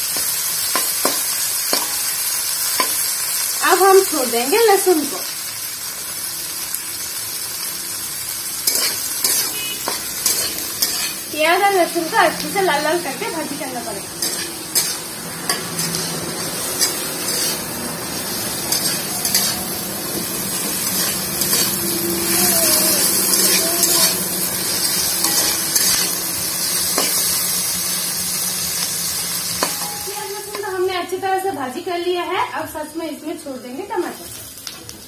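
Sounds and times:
onions sizzling in oil: 0:00.0 - 0:35.0
metal spatula scraping pan: 0:08.7 - 0:11.3, 0:14.1 - 0:22.3, 0:23.2 - 0:27.4.

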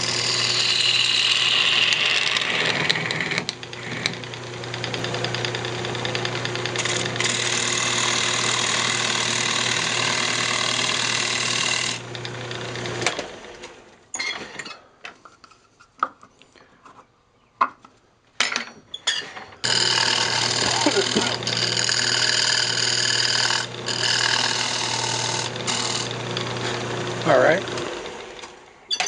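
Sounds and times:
gouge cutting wood on lathe: 0:00.0 - 0:13.7, 0:19.6 - 0:28.6
lathe motor hum: 0:00.0 - 0:13.7, 0:19.6 - 0:28.6.

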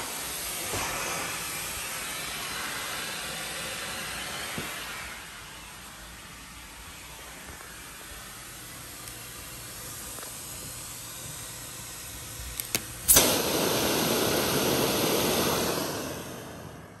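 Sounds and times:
vacuum suction air rushing: 0:00.0 - 0:05.5, 0:09.3 - 0:17.0.

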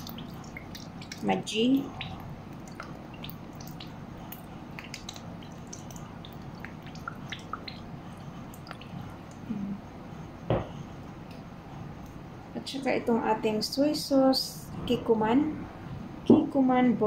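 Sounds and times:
squid bubbling in a pan: 0:00.0 - 0:09.5
dull knock: 0:10.5 - 0:10.7.

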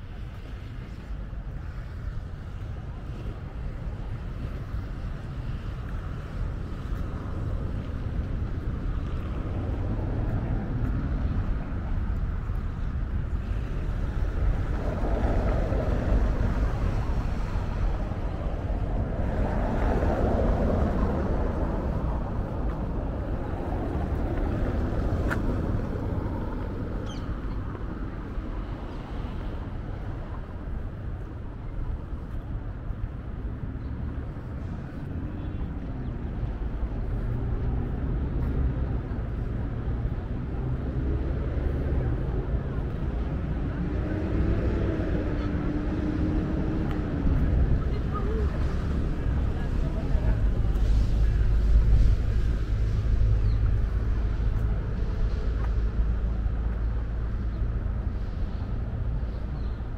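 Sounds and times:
steady low rumble: 0:00.0 - 0:59.9
traffic going by: 0:00.0 - 0:59.9
vehicle passing: 0:33.3 - 0:59.9.

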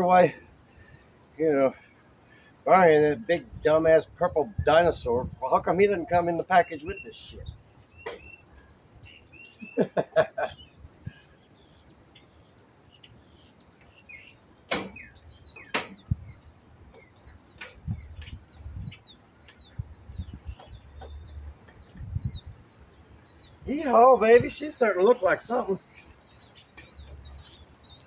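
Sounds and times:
bird chirping: 0:00.0 - 0:28.0
wind rumble on microphone: 0:03.4 - 0:06.4, 0:15.9 - 0:16.5, 0:17.4 - 0:24.6.

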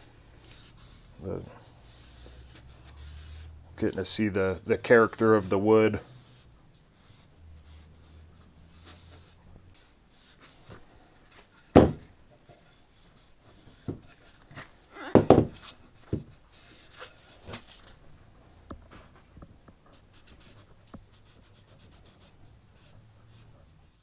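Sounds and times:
rag rubbing wood: 0:00.4 - 0:06.4
axe knocking on wooden workbench: 0:11.8 - 0:12.0, 0:15.2 - 0:16.3.

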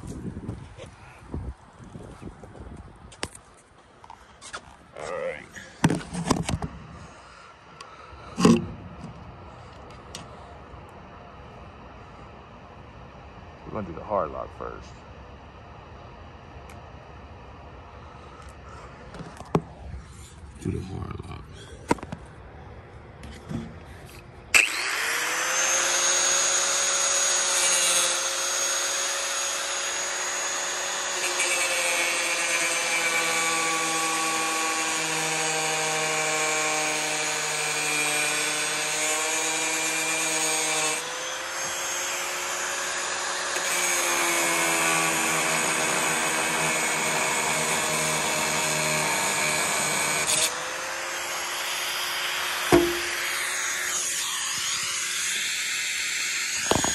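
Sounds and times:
angle grinder cutting steel: 0:24.5 - 0:56.9.

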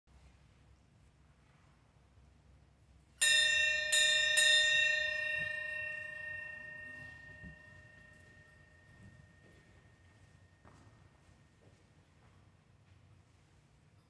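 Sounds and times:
bell ringing: 0:03.2 - 0:10.0.

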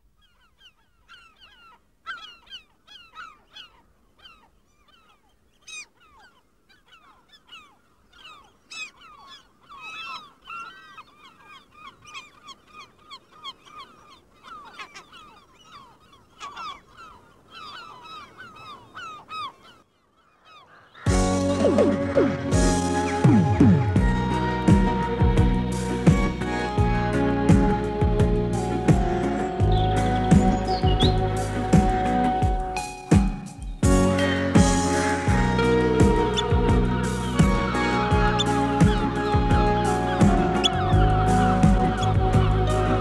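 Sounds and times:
flock of birds calling: 0:00.0 - 0:43.0
loud music: 0:21.1 - 0:43.0.

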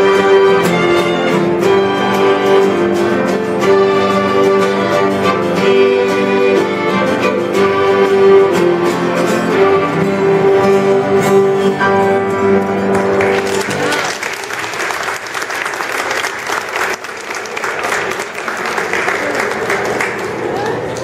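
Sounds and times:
violins and guitars playing: 0:00.0 - 0:14.0
audience applause: 0:12.8 - 0:21.0.

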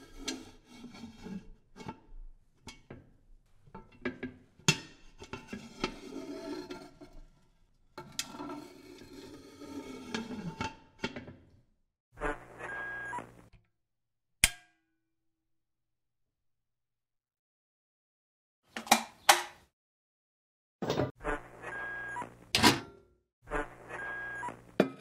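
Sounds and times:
metal kettle scraping: 0:00.0 - 0:02.9, 0:03.8 - 0:11.3.

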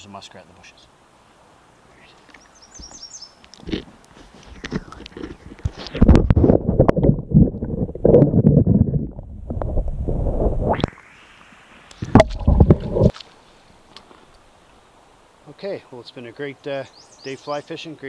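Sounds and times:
muffled underwater sloshing: 0:12.0 - 0:13.4.

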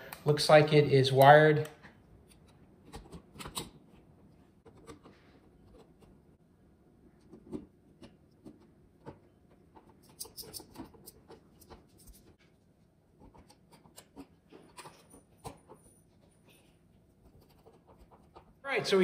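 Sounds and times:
screwdriver scraping and clicking: 0:07.4 - 0:12.4, 0:13.2 - 0:16.0.

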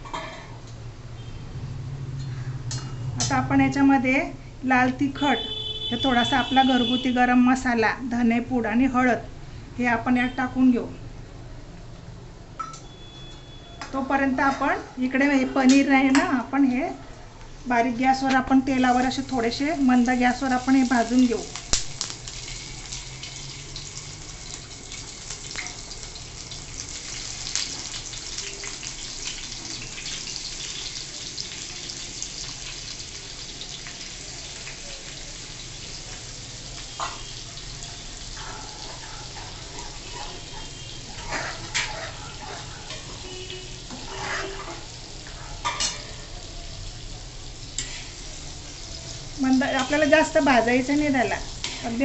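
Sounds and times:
cheese frying with soft sizzle: 0:18.6 - 0:52.0.

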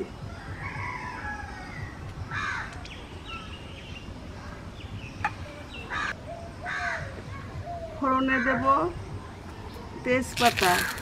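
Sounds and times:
crow cawing: 0:02.3 - 0:02.7, 0:05.9 - 0:07.1.

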